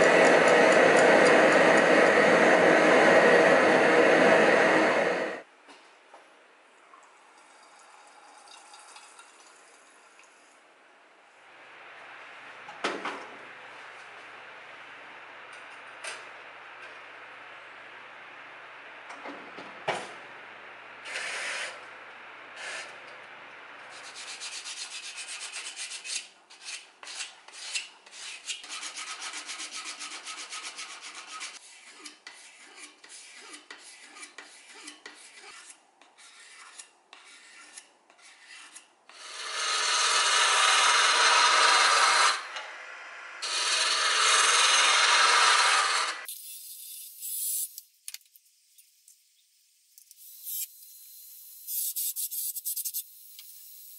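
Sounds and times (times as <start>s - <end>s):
hand file rasping on steel: 24.1s - 42.2s
wood lathe gouge cutting: 39.2s - 42.5s, 43.4s - 46.3s.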